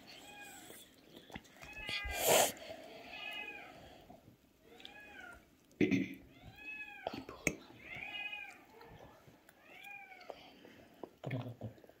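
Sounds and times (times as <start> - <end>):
cat meowing: 7.8 - 8.7.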